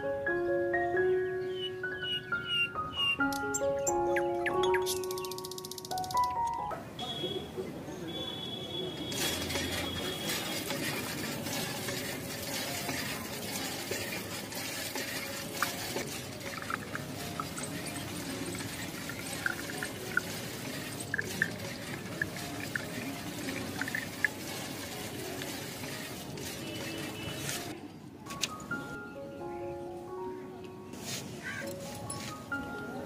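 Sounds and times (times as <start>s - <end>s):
water trickling from toy pump: 9.0s - 27.8s
small drips and ticks: 13.6s - 27.7s.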